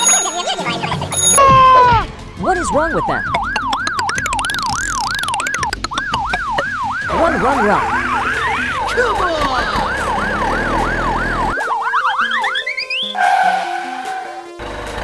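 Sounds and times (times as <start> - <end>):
police siren yelping: 2.7 - 14.6.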